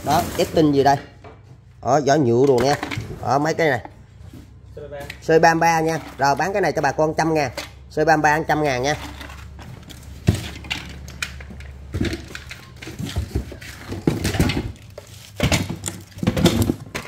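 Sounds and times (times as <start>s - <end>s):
chainsaw parts clattering on concrete: 2.3s - 3.2s, 5.0s - 17.0s.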